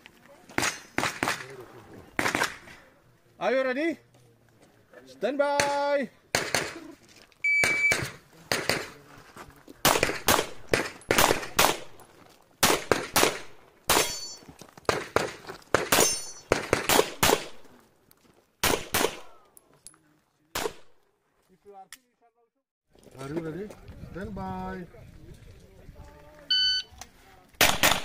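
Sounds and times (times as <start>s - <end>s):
rapid pistol shots: 2.2s - 2.6s, 5.6s - 6.8s, 9.8s - 11.9s, 12.6s - 14.2s, 14.9s - 17.6s, 18.6s - 19.4s, 20.6s - 20.9s, 27.6s - 28.0s.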